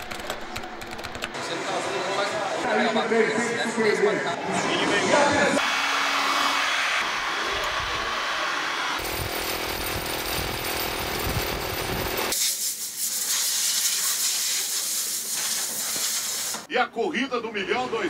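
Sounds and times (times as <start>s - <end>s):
air compressor humming and pulsing: 7.3s - 13.1s
hot-air gun blowing: 9.0s - 16.7s
compressed-air hose hissing: 12.3s - 16.7s.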